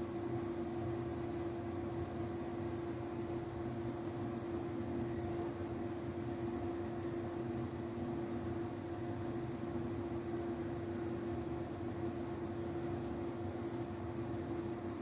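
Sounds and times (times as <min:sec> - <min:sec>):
equipment hum: 0:00.0 - 0:15.0
faint mouse clicks: 0:04.0 - 0:04.3, 0:06.5 - 0:06.8, 0:09.4 - 0:09.6, 0:12.8 - 0:13.2.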